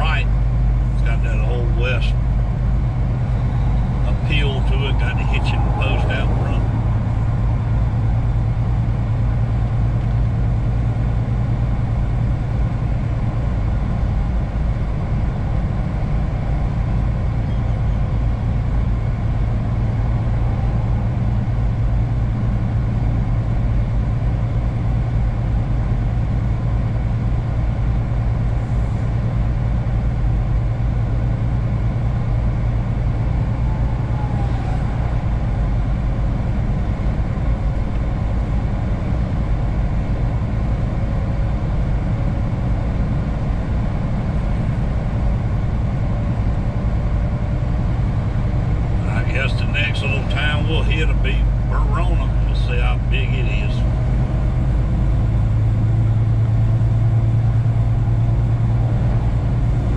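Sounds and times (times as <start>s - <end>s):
truck engine and tyres droning: 0.0s - 59.9s.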